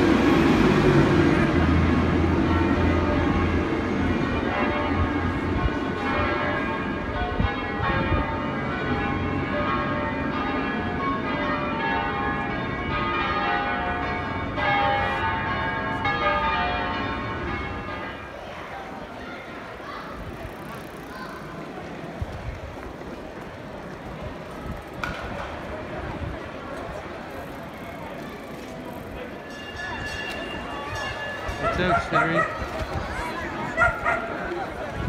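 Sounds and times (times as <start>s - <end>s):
church bells ringing: 1.4s - 19.1s, 29.2s - 34.2s.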